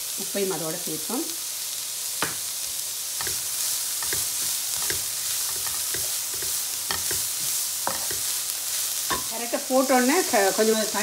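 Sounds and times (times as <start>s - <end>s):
vegetables sizzling in oil: 0.0s - 11.0s
spatula scraping a pan: 2.2s - 11.0s.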